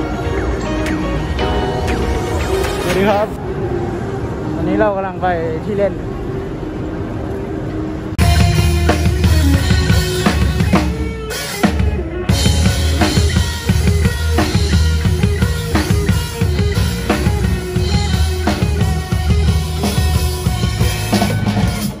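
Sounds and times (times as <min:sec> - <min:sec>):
drum kit with cymbals: 0:08.2 - 0:22.0
electric guitar: 0:08.2 - 0:22.0.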